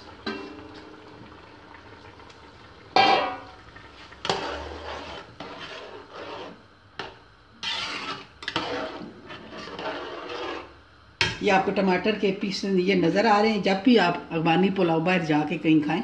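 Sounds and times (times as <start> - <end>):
liquid sloshing in a pot: 0.0 - 11.5
metal cookware clanging: 0.2 - 0.8, 3.0 - 3.6
metal spatula scraping a pot: 4.2 - 10.8.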